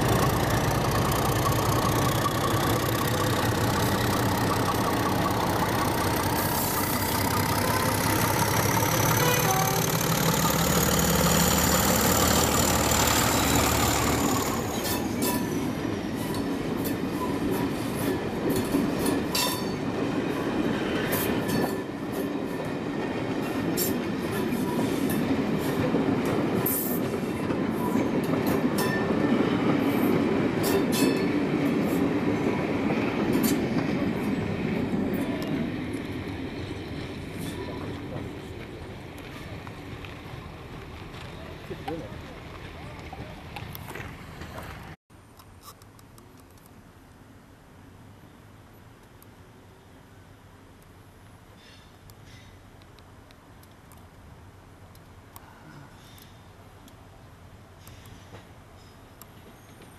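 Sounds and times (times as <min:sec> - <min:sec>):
high engine whine: 0:00.0 - 0:15.1
wheels clicking over rail joints: 0:00.0 - 0:20.2
diesel locomotive engine passing: 0:00.0 - 0:45.0.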